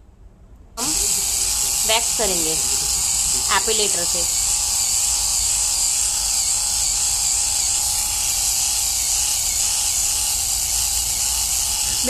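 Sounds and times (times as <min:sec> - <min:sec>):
electric epilator running: 0:00.8 - 0:12.0.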